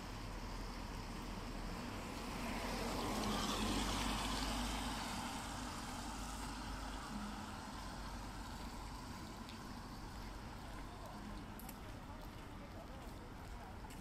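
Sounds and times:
vehicle passing: 2.2 - 11.2.

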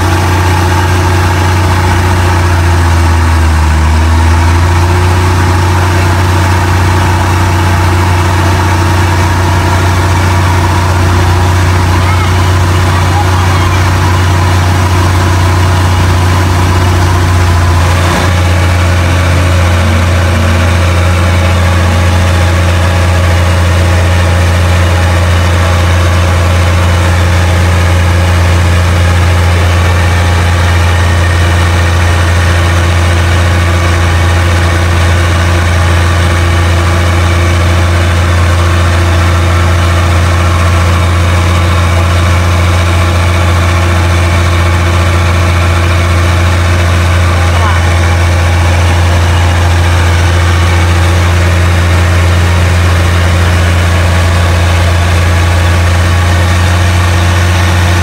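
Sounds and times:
boat engine droning: 0.0 - 58.0.

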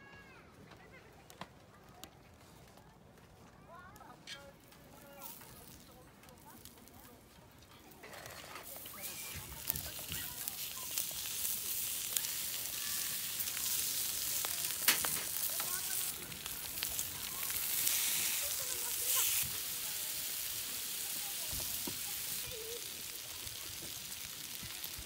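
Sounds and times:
meat sizzling on a griddle: 7.9 - 25.0.

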